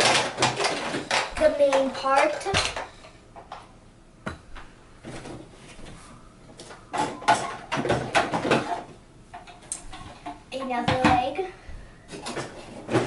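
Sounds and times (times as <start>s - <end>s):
plastic parts rattling in cardboard box: 0.0s - 2.9s.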